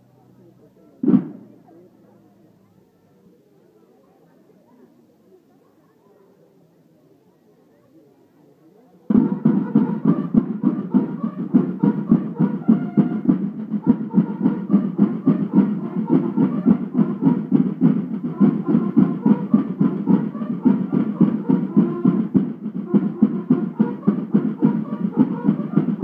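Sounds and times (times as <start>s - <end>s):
snare drums beating: 1.0s - 1.5s, 9.1s - 26.0s
bugles sounding a march call: 9.1s - 26.0s.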